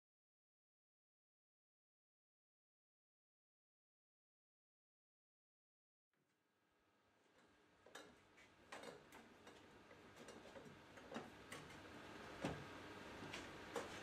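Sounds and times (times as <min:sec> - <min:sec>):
cable clicks and knocks: 0:07.9 - 0:11.8.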